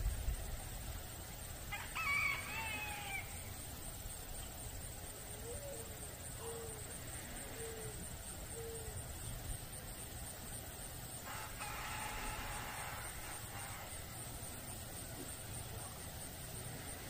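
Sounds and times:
rooster crowing: 1.7s - 3.5s, 11.2s - 14.0s.

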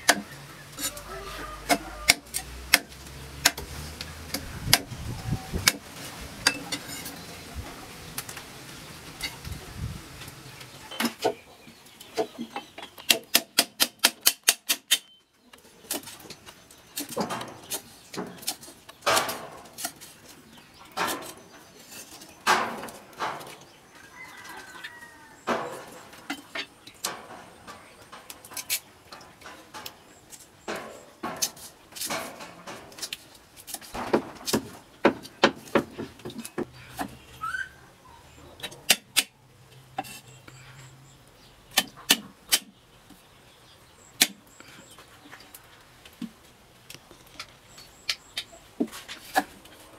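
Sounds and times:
bird chirping: 10.3s - 13.6s, 14.9s - 19.1s, 35.9s - 38.9s, 47.0s - 48.8s.

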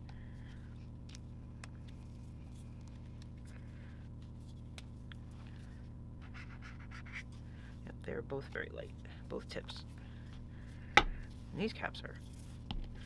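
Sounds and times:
marker scratching on paper: 6.2s - 7.3s.

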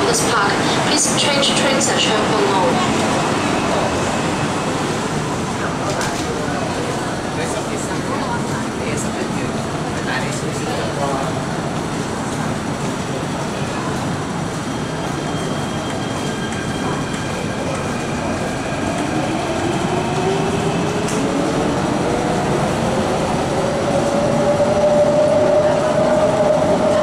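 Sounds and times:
train rumble: 0.0s - 27.0s.

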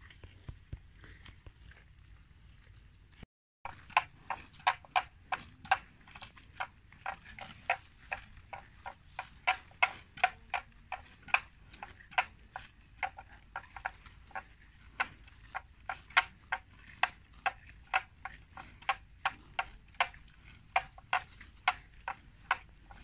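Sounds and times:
buffalo tearing and chewing grass: 0.0s - 23.0s.

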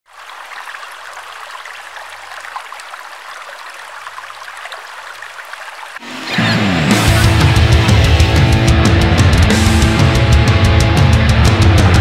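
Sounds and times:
small water splashes: 0.1s - 6.0s
stream rushing over stones: 0.1s - 6.3s.

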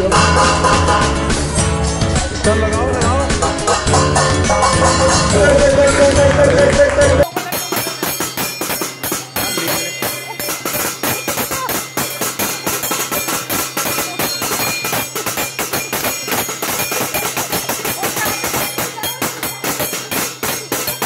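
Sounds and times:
spoons clanging on steel plates: 7.2s - 21.0s.

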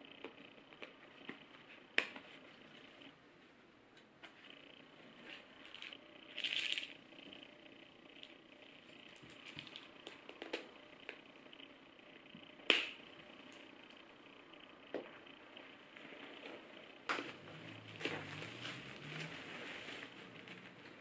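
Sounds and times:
plastic shaker rustle: 5.6s - 6.9s.

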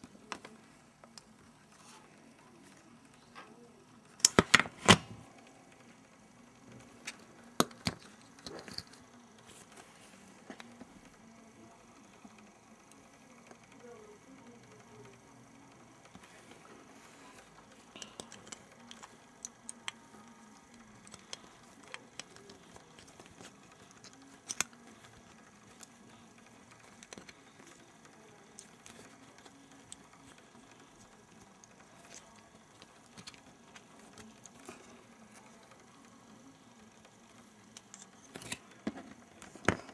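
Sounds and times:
plastic toy clicks and snaps: 4.2s - 5.0s, 18.0s - 25.9s.

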